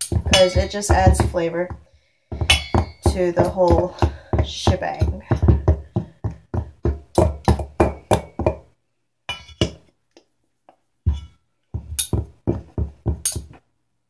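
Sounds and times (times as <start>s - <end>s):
knives clinking in a steel pot: 0.0s - 1.1s, 2.5s - 3.7s, 9.3s - 9.7s, 13.2s - 13.5s.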